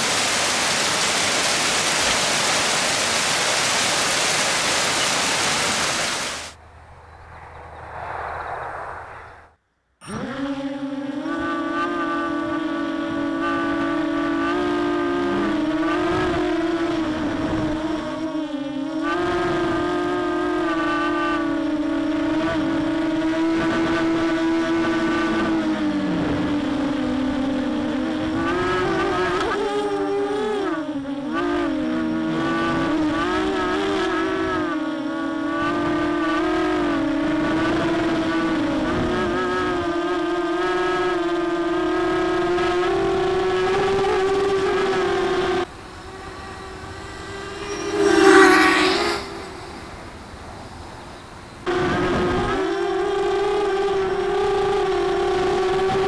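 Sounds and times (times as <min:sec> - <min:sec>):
quadcopter motors whining: 0:10.0 - 0:12.6, 0:45.6 - 0:56.0.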